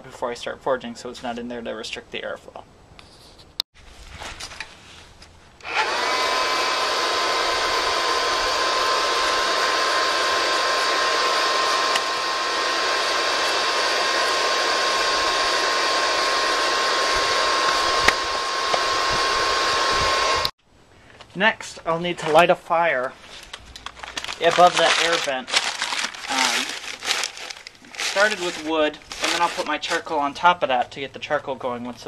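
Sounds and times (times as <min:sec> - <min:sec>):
hair dryer blowing air: 0:05.6 - 0:20.6, 0:25.9 - 0:30.0.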